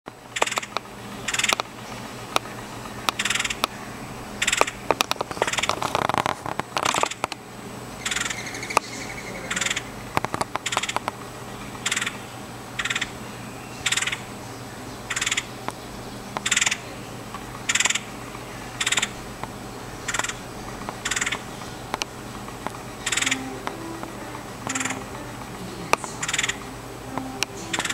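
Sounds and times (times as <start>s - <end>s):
woodpecker calling: 0.3s - 6.0s, 8.0s - 27.9s
clicks: 17.3s - 27.9s.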